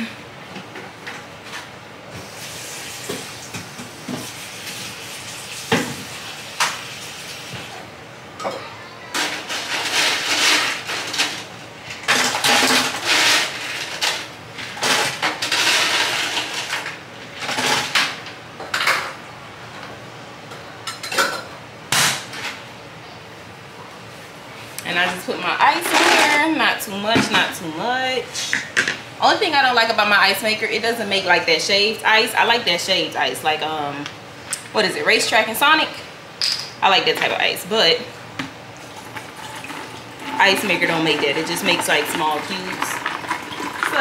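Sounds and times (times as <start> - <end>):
ice cubes clattering into tumbler: 42.0 - 44.0.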